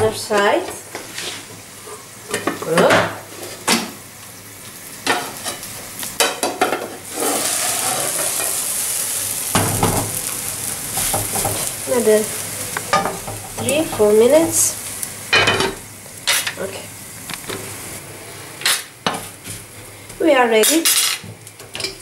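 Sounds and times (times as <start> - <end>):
food sizzling in pan: 0.0 - 22.0
frying pan and lid clattering: 5.0 - 8.7, 9.4 - 10.3, 10.9 - 14.7, 15.3 - 16.6.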